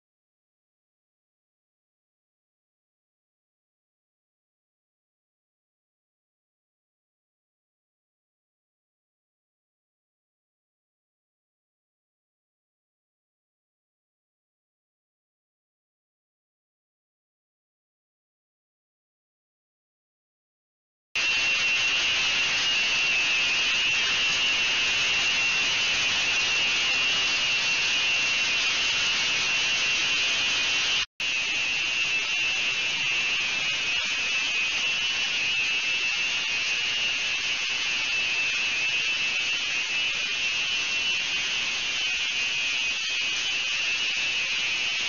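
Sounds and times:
ultrasonic cleaner hissing: 0:21.2 - 0:45.0.

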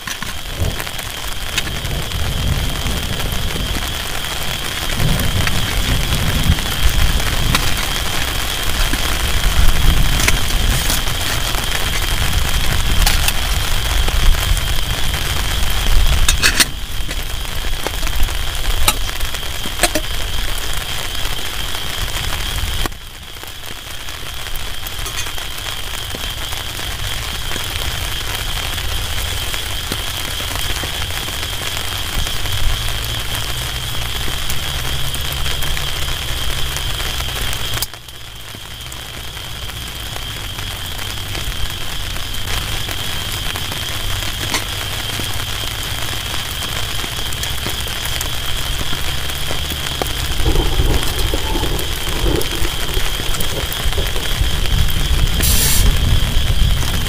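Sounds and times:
low rumble: 0:00.0 - 0:20.9, 0:49.3 - 0:57.0
heavy rain on a tarp: 0:00.0 - 0:57.0.

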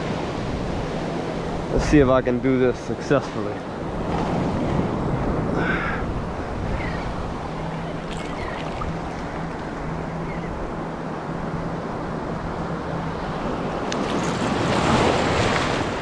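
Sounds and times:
surf washing: 0:00.0 - 0:16.0
wind on microphone: 0:03.8 - 0:10.9.

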